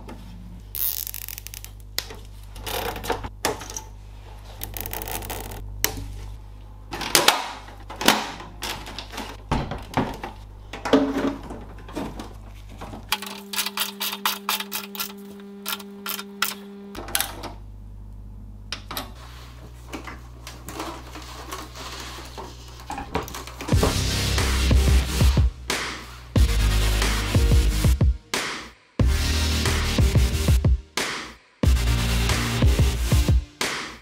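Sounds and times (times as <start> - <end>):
steady low hum: 0.0 - 26.8.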